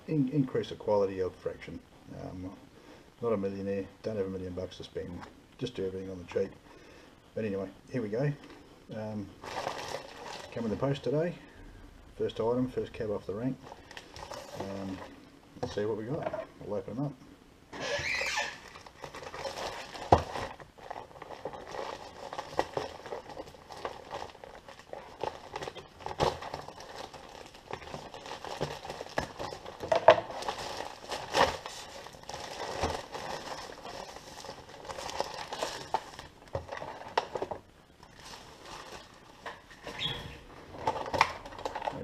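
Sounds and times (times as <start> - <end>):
plastic mailer bag crinkling: 9.4 - 11.3, 12.8 - 15.2, 18.0 - 42.0.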